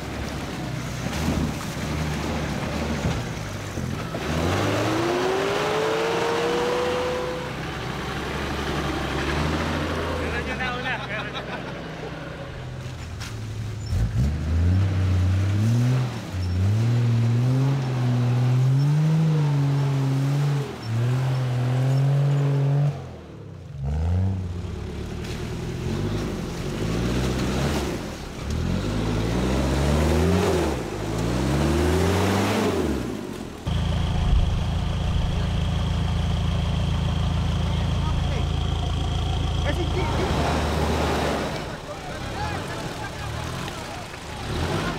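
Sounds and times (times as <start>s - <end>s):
truck engine revving: 0.0s - 44.9s
engine idling: 33.2s - 44.9s.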